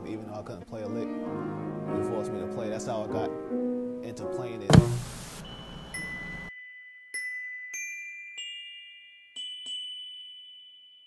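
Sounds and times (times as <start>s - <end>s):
tv static hiss: 4.7s - 6.5s.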